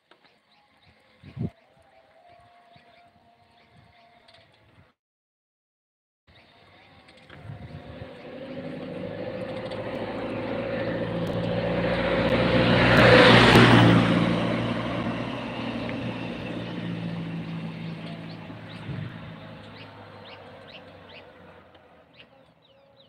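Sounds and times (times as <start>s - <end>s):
heavy vehicle driving past: 7.4s - 22.2s.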